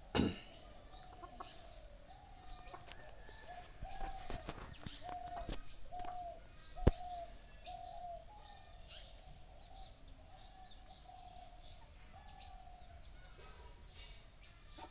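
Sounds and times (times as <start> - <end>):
birds chirping: 0.0 - 14.9
birds whistling: 0.8 - 12.6.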